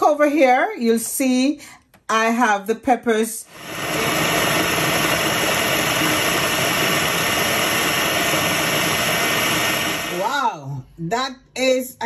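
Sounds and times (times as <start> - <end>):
food processor chopping: 3.5 - 10.3.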